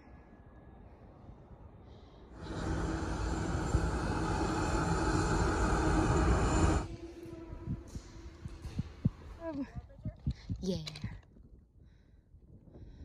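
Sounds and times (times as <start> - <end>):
diesel locomotives passing: 2.2 - 9.0.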